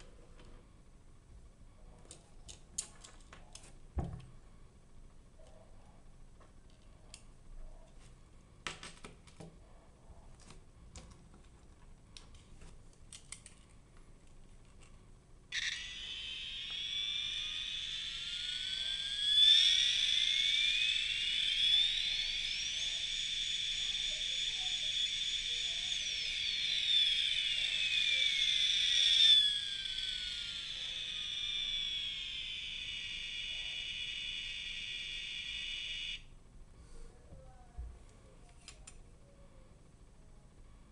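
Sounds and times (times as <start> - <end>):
electronic toy whine sweeping: 15.5 - 36.3.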